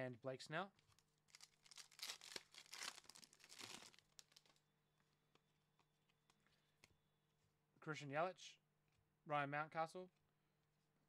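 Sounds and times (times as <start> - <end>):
wrapper tearing and crinkling: 0.9 - 4.6.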